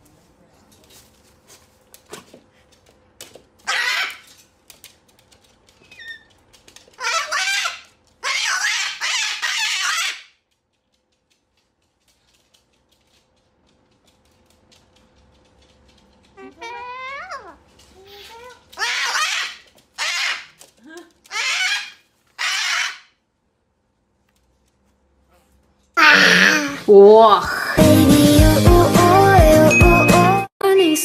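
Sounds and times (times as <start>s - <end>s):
cockatoo screeching: 3.7s - 4.3s, 7.0s - 10.3s, 18.8s - 20.5s, 21.3s - 23.1s, 26.0s - 26.8s.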